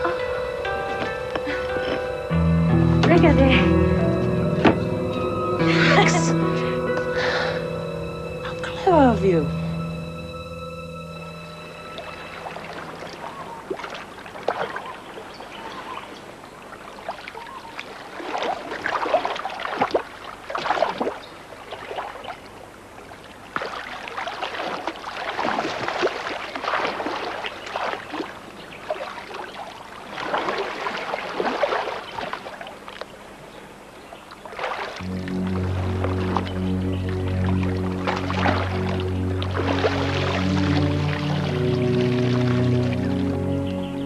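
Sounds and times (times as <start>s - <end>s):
seawater splashing: 11.9s - 33.4s, 34.2s - 44.0s.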